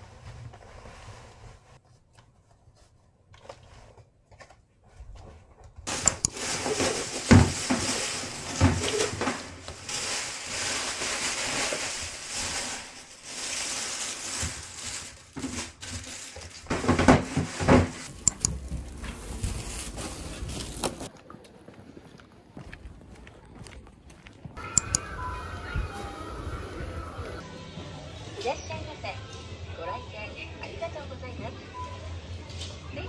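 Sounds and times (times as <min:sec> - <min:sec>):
plastic bags rustling: 0:05.9 - 0:21.1.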